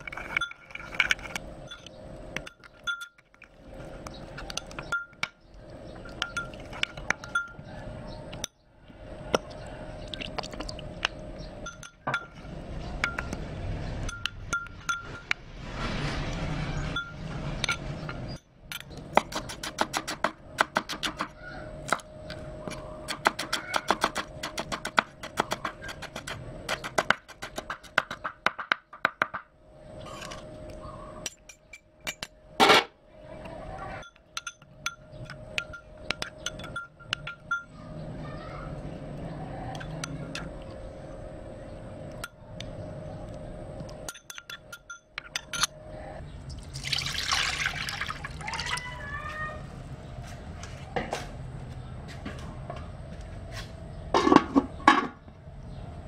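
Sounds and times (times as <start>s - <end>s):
metal spoon clinking ceramic bowl: 0.1s - 3.4s, 4.4s - 5.3s, 6.1s - 7.7s, 11.6s - 12.4s, 34.0s - 37.7s, 44.0s - 45.8s.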